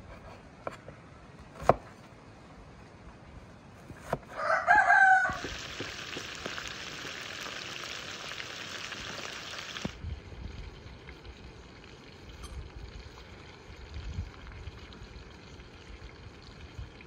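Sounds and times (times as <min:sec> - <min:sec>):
knife chop: 0:01.6 - 0:01.9
rooster crowing: 0:04.3 - 0:05.7
chicken sizzling in butter: 0:05.2 - 0:10.0.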